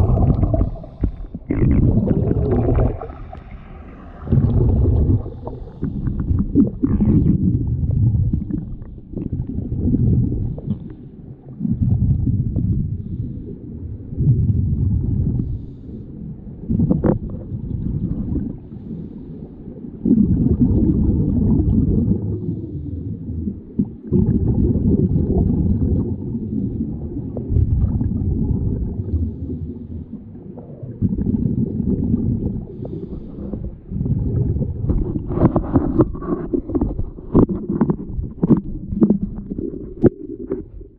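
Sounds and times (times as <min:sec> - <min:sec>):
diver breathing through regulator: 0:00.0 - 0:07.4, 0:32.6 - 0:40.7
sharp bubble crackles: 0:00.0 - 0:10.9, 0:20.0 - 0:22.5, 0:23.4 - 0:26.6, 0:27.3 - 0:29.4, 0:30.3 - 0:33.2, 0:33.9 - 0:40.9
exhaled bubbles rumbling: 0:00.0 - 0:40.9.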